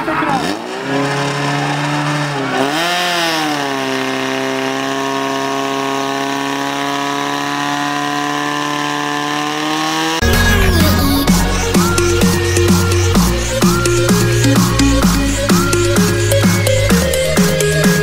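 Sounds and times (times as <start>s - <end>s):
petrol engine pump droning: 10.2s - 18.0s.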